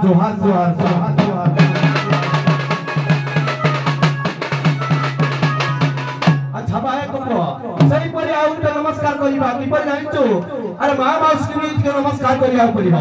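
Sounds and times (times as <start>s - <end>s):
barrel drums beaten fast: 0.7s - 6.8s, 7.7s - 9.2s.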